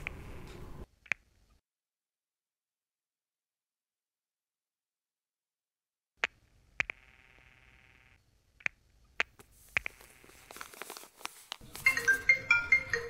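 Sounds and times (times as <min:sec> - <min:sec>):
sharp clicks and taps: 0:06.2 - 0:07.0, 0:08.6 - 0:10.0
soft rustling: 0:09.4 - 0:12.2.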